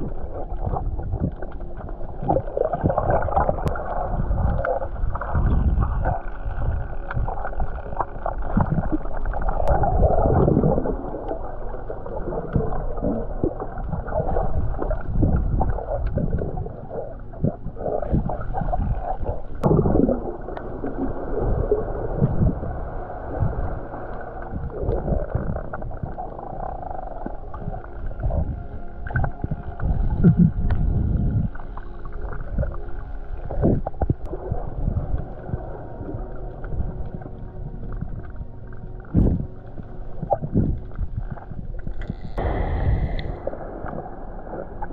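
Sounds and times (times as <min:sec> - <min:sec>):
underwater gurgling: 0:00.0 - 0:44.9
low underwater thumps: 0:12.5 - 0:31.6, 0:33.5 - 0:44.9.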